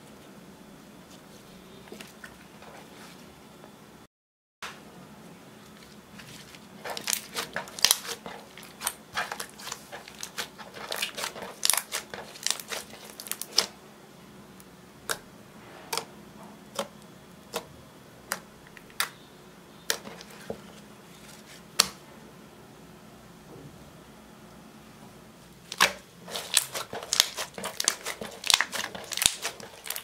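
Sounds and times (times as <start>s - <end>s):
slime squelching: 5.7s - 13.8s, 25.7s - 30.0s.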